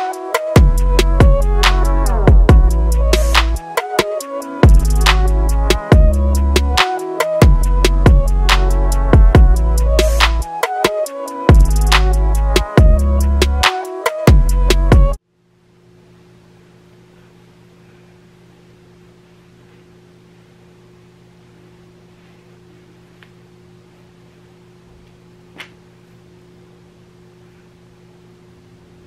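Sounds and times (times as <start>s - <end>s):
low electrical hum: 0.6s - 3.6s, 14.5s - 29.0s.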